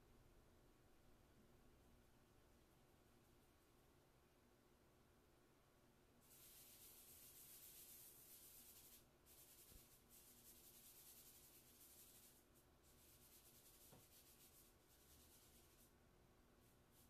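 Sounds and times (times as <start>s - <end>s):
fingers rubbing charcoal on paper: 6.2s - 15.9s.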